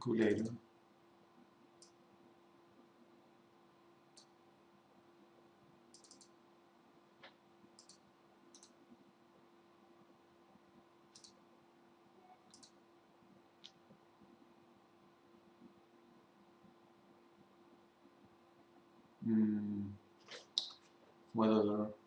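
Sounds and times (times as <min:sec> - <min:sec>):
faint low hum: 0:00.0 - 0:22.0
mouse button clicks: 0:12.5 - 0:12.8.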